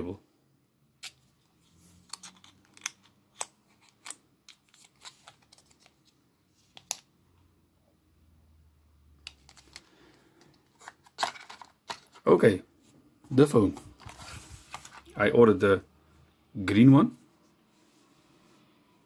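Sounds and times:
rustling of packaging: 1.1s - 7.1s, 9.2s - 12.3s, 13.4s - 15.1s.

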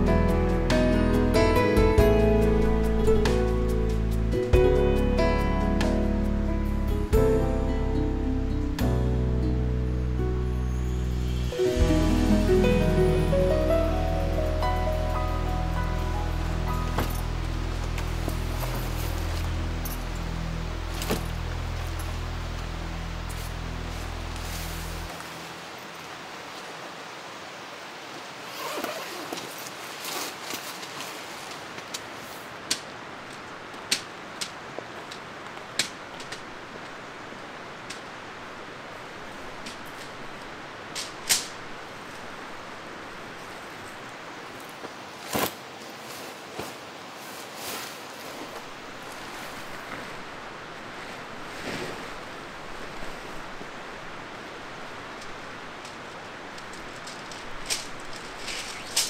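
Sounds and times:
steady hiss: 0.0s - 59.0s
stream rushing: 0.0s - 59.0s.

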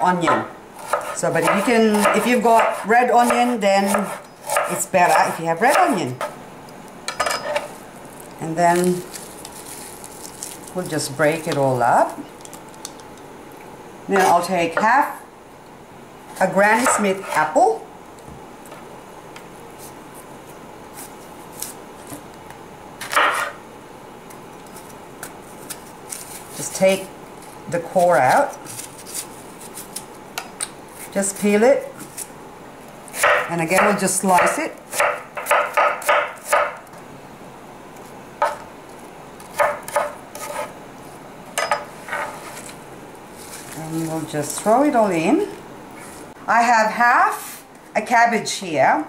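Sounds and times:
knife crunching through apple: 24.7s - 26.6s, 27.4s - 30.2s.

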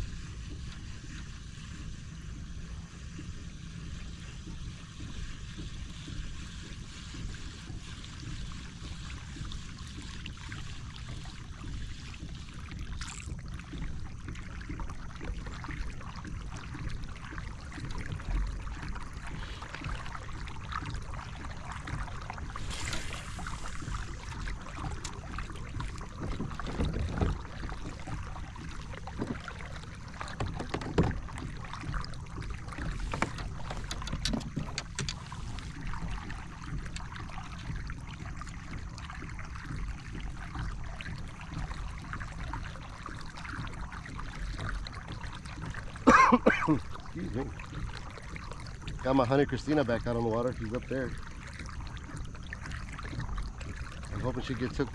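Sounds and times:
water lapping against a hull: 0.0s - 54.9s
wind rumble on microphone: 0.0s - 54.9s
gear clicking and knocking: 33.0s - 35.2s.

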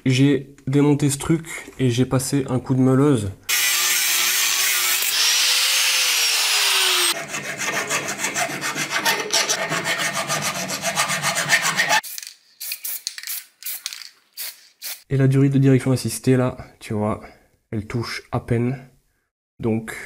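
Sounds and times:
angle grinder grinding metal: 3.5s - 12.0s
hand file rasping metal: 6.1s - 12.0s.

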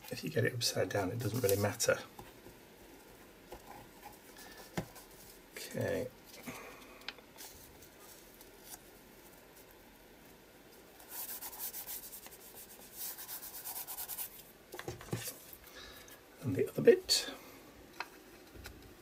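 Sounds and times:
hands rubbing paper: 11.0s - 14.5s.

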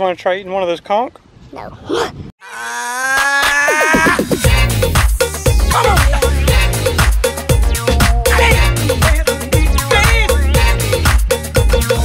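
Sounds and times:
music with drum beat and bass: 3.8s - 12.0s.

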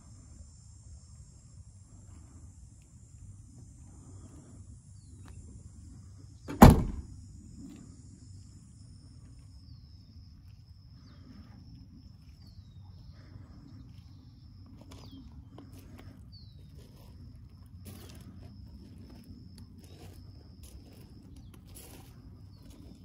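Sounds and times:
insect chirring: 0.0s - 23.0s
car hatch slamming shut: 6.5s - 7.1s.

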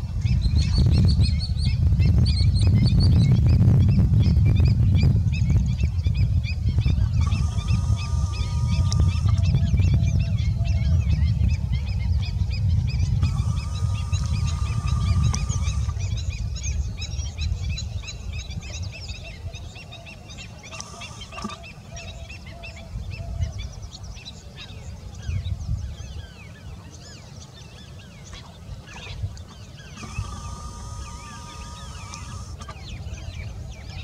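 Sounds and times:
swallows twittering: 0.2s - 34.0s
steady held tone: 7.1s - 9.8s, 13.2s - 16.1s, 30.0s - 32.8s.

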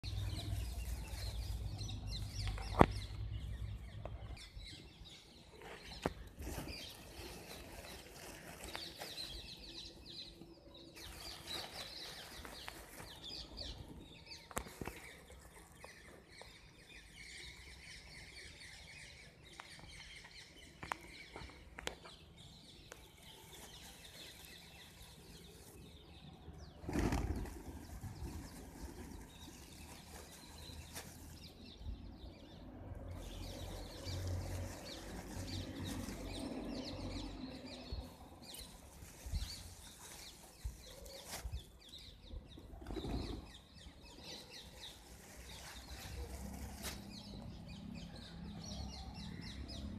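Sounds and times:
pigeon wings flapping: 26.8s - 29.0s.

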